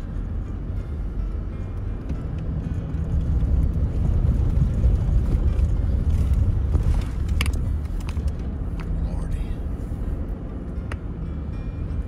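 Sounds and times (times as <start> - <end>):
car engine and road noise rumble: 0.0 - 12.0.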